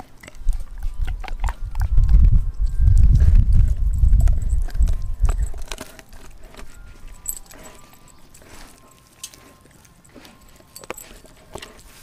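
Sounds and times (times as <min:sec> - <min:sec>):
dog collar tags clinking: 0:02.5 - 0:12.0.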